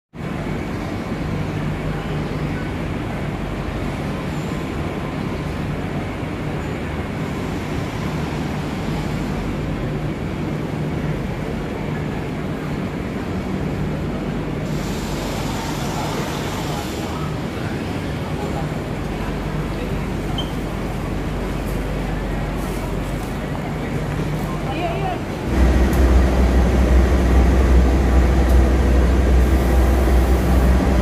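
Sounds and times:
even rushing noise: 25.4s - 31.0s
low hum: 25.5s - 31.0s.

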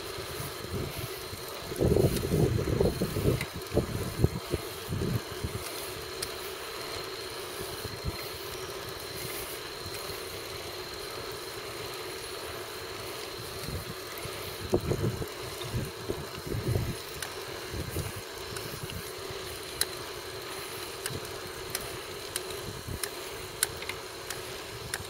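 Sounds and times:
bicycle riding noise: 0.0s - 25.0s
wind buffeting microphone: 0.6s - 5.7s, 13.6s - 19.1s.

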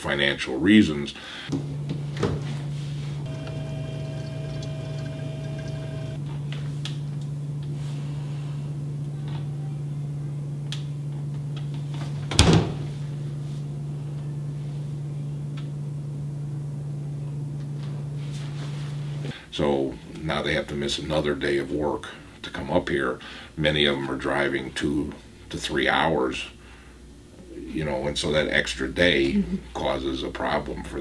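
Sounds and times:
low hum: 2.8s - 6.5s
high whine: 3.2s - 6.2s
refrigerator door closing: 12.3s - 12.8s.

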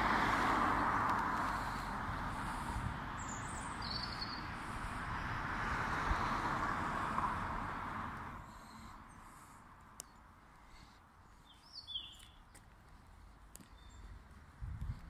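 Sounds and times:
passing car: 0.0s - 9.8s.

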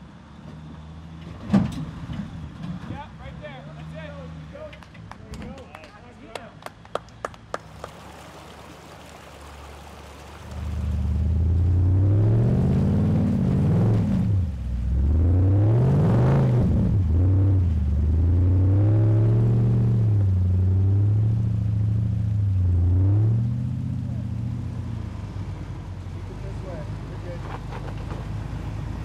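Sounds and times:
engine revving: 10.6s - 29.0s.

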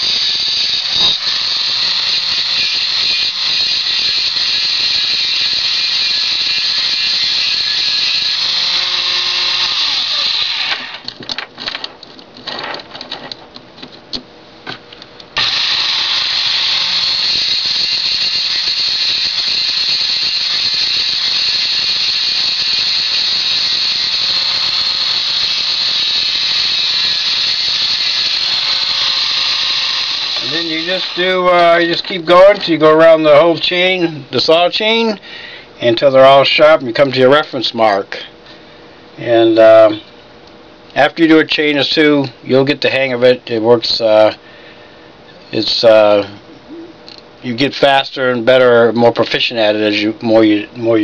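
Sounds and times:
grinder whining: 0.0s - 11.1s, 15.4s - 35.0s.

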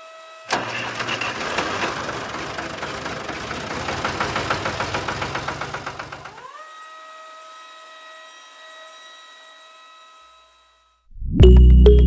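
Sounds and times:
small electric motor humming: 0.0s - 0.5s, 6.1s - 11.1s.

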